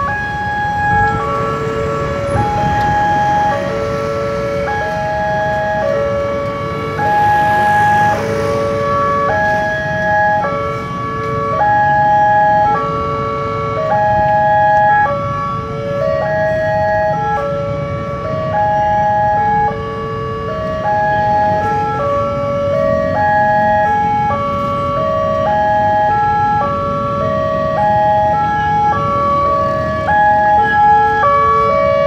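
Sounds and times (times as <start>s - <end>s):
level-crossing alarm melody: 0.0s - 15.2s.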